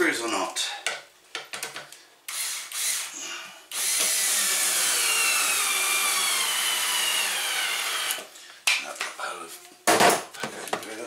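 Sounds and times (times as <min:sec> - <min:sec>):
cordless drill driving a screw: 0:02.3 - 0:08.3.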